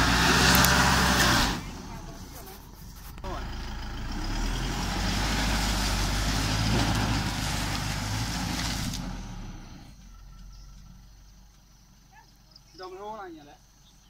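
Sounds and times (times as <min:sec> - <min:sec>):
tyres crushing vines: 0:00.0 - 0:09.6
diesel engine working under load: 0:00.0 - 0:12.5.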